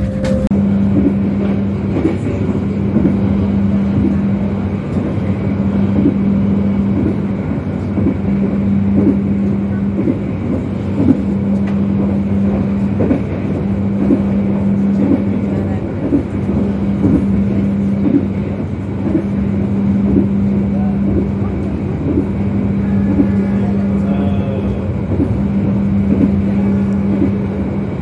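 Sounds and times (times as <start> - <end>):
soft rail clack: 0.0 - 3.3
train hum and rumble: 0.0 - 28.0.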